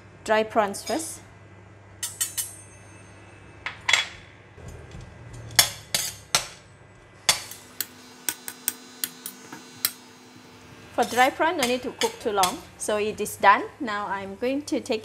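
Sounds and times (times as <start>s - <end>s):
metal utensil clinking in wok: 2.0s - 2.9s.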